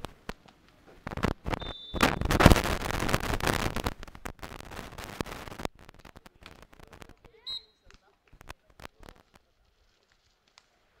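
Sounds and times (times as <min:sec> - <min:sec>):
dense crackling thumping noise: 0:00.0 - 0:10.8
faint referee whistle: 0:01.6 - 0:02.3, 0:07.4 - 0:07.8.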